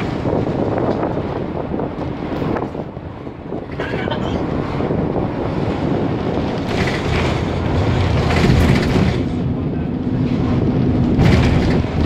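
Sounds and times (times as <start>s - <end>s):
bus engine and road rumble: 0.0s - 12.0s.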